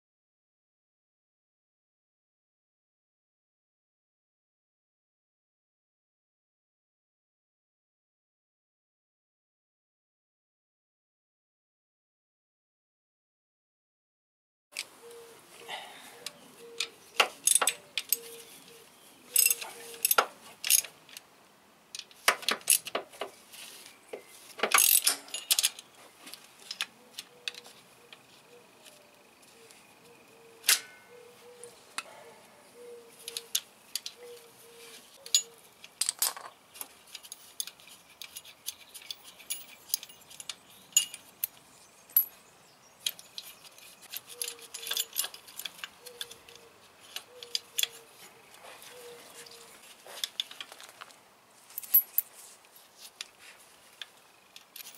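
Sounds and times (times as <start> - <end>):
metal tools clinking: 19.3 - 20.9, 24.7 - 25.9, 35.2 - 36.5, 37.1 - 42.4, 43.0 - 48.0, 51.7 - 52.4, 54.6 - 54.9.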